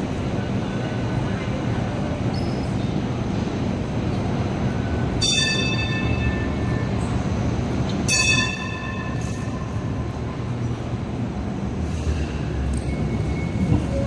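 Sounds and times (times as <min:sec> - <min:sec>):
light rail vehicle rumbling: 0:00.0 - 0:14.0
tram warning gong: 0:04.9 - 0:10.5.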